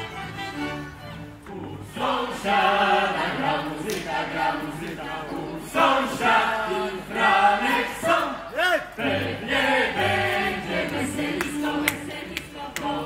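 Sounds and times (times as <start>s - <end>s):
folk band music: 0.0s - 7.9s
group singing unaccompanied: 1.4s - 13.0s.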